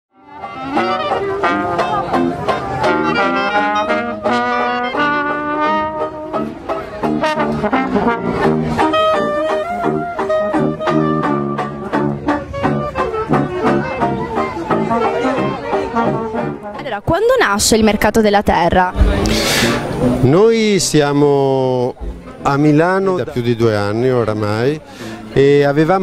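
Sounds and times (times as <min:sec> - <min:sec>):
brass band playing jazz: 0:00.2 - 0:17.0, 0:18.9 - 0:20.4.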